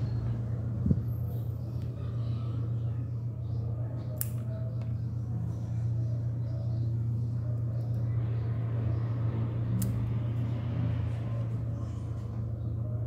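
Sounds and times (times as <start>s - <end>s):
low hum: 0.0s - 13.0s
small scissors snipping: 4.2s - 4.5s, 9.8s - 10.1s.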